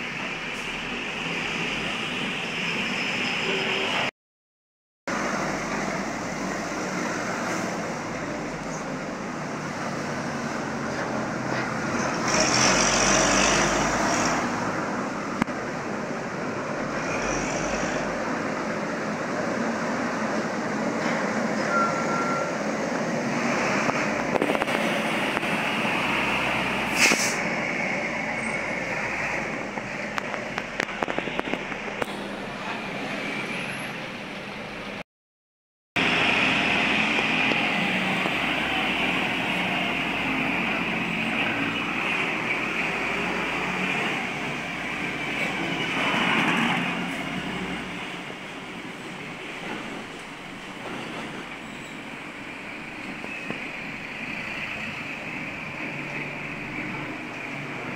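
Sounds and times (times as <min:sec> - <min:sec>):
trucks and bus passing: 0:00.0 - 0:04.1, 0:05.1 - 0:35.0, 0:36.0 - 0:57.9
short sharp hiss: 0:26.9 - 0:27.5.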